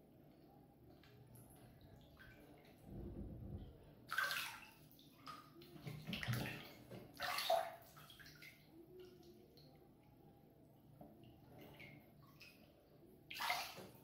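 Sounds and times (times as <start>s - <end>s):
bathwater splashing: 2.2s - 5.3s, 13.3s - 14.0s.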